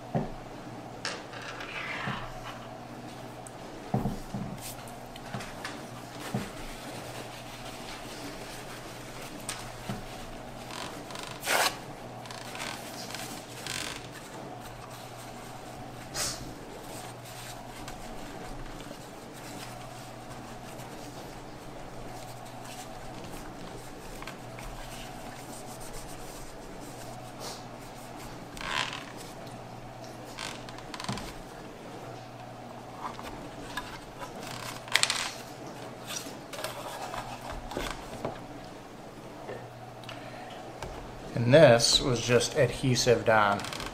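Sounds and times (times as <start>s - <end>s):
faint steady hum: 0.0s - 43.9s
paper towel rubbing and rustling: 4.1s - 38.6s.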